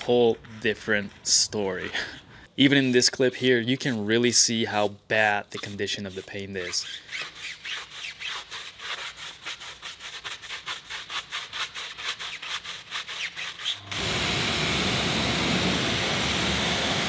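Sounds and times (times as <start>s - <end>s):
brush scrubbing tyre: 0.0s - 13.8s
pressure washer spraying: 13.6s - 17.0s.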